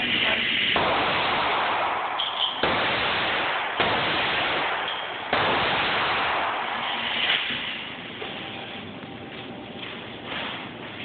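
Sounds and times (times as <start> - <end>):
reverberant gunshots: 0.8 - 8.2.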